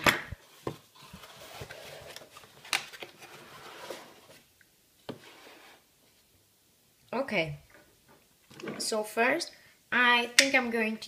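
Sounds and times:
cardboard box rustling and scraping: 0:00.5 - 0:02.5, 0:03.1 - 0:04.4.

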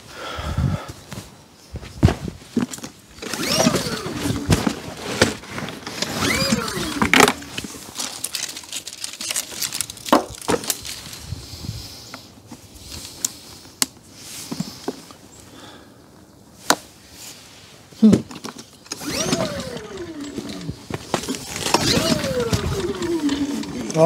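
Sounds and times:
handling clicks and knocks: 0:02.5 - 0:11.0, 0:18.1 - 0:24.0
generator recoil starter whirring: 0:03.2 - 0:09.9, 0:18.8 - 0:24.0.

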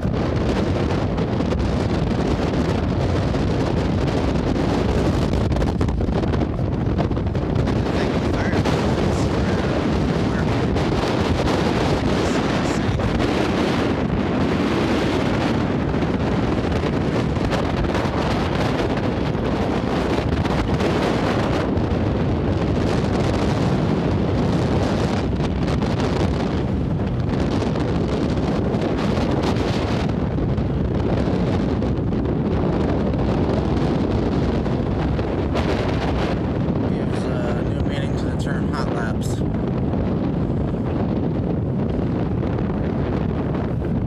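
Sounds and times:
wind buffeting microphone: 0:00.0 - 0:44.0
helicopter rotor and engine: 0:36.4 - 0:40.4.

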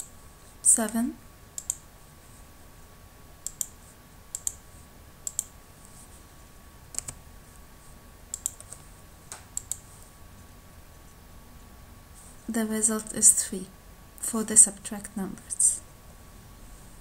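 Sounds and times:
computer mouse clicks: 0:01.6 - 0:01.8, 0:03.4 - 0:04.6, 0:05.2 - 0:05.5, 0:06.9 - 0:07.2, 0:08.3 - 0:09.9.

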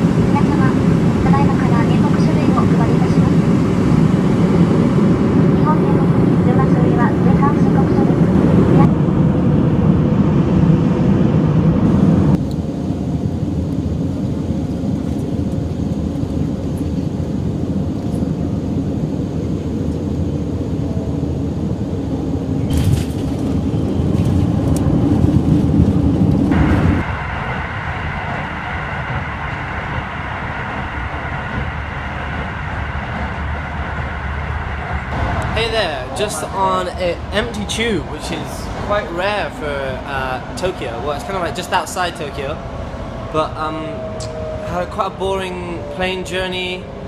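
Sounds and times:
airliner cabin noise: 0:00.0 - 0:47.0
steady rumble: 0:00.0 - 0:47.0
train carriage running noise: 0:11.8 - 0:47.0.

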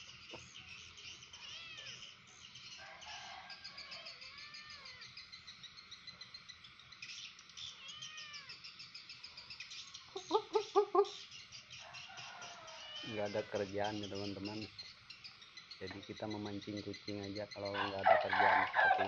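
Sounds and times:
birds chirping: 0:00.0 - 0:19.0
insects trilling: 0:00.0 - 0:19.0
cat meowing softly: 0:01.4 - 0:02.0, 0:03.9 - 0:05.1, 0:07.7 - 0:08.6, 0:12.7 - 0:13.2.

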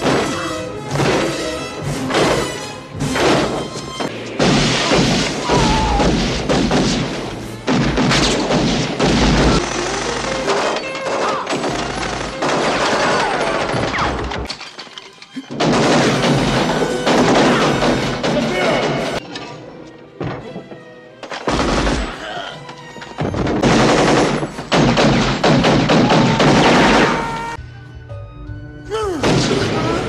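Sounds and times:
gunshots: 0:00.0 - 0:14.5, 0:15.5 - 0:19.2, 0:21.4 - 0:22.2, 0:23.3 - 0:27.6, 0:29.2 - 0:30.0
film music score: 0:00.0 - 0:30.0.

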